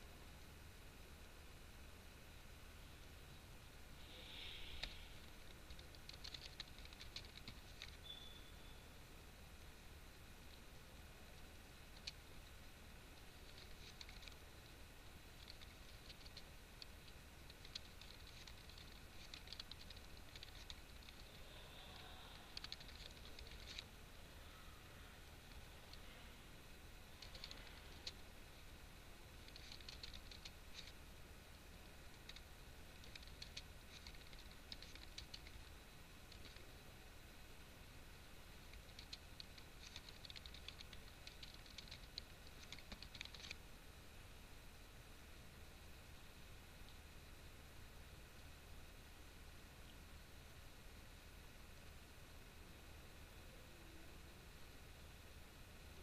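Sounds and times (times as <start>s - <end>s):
low steady hum: 0.0s - 56.0s
keyboard typing: 4.7s - 8.2s, 12.0s - 12.2s, 13.4s - 14.4s, 15.4s - 21.4s, 22.3s - 23.9s, 27.2s - 28.2s, 29.3s - 31.0s, 32.1s - 35.7s, 36.3s - 36.6s, 38.7s - 43.6s.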